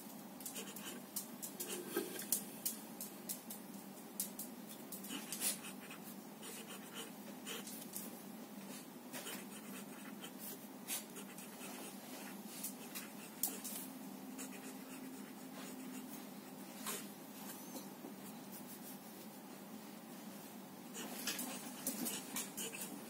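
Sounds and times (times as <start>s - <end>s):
pen nib scratching on paper: 0.5s - 1.0s, 1.6s - 2.2s, 5.1s - 7.8s, 9.2s - 13.8s, 14.4s - 16.1s, 21.0s - 23.0s.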